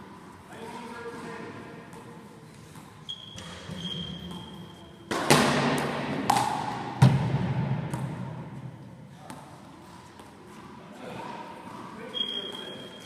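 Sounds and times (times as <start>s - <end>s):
high steady squeak: 3.1s - 4.8s, 12.1s - 13.0s.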